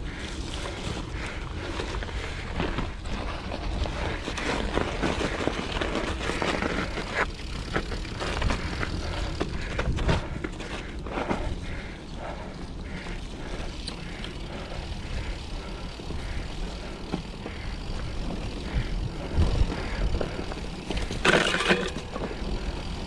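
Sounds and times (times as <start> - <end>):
bike rattling and clicking: 0.0 - 23.0
bike tyres rumbling on trail: 0.0 - 23.0.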